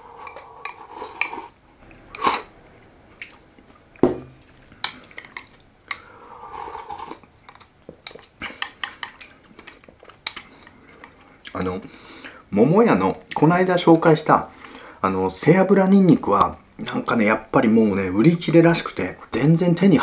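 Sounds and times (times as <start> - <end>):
soft eating noises: 0.0 - 12.5.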